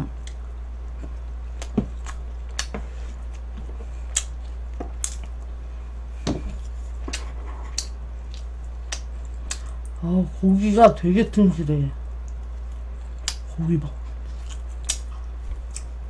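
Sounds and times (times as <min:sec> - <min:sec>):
steady low hum: 0:00.0 - 0:16.0
chewing and mouth smacks: 0:00.2 - 0:05.5, 0:07.0 - 0:10.0, 0:12.2 - 0:16.0.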